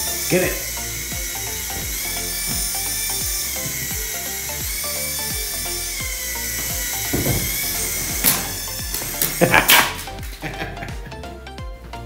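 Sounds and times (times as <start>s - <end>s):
toy helicopter motor whine: 0.0s - 10.3s
background music with beat: 0.0s - 12.0s.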